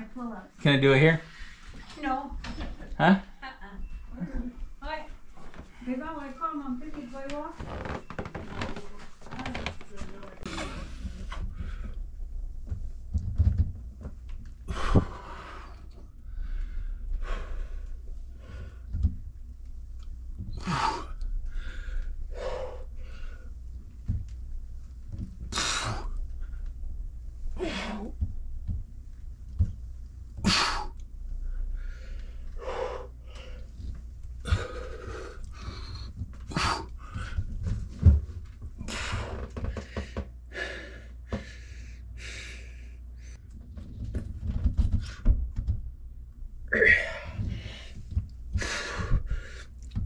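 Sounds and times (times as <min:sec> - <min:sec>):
low steady hum: 0:00.0 - 0:50.0
man breathing hard: 0:14.6 - 0:19.0, 0:20.5 - 0:23.6, 0:25.5 - 0:26.7, 0:27.6 - 0:28.2, 0:30.4 - 0:37.7, 0:38.8 - 0:43.4, 0:46.7 - 0:50.0.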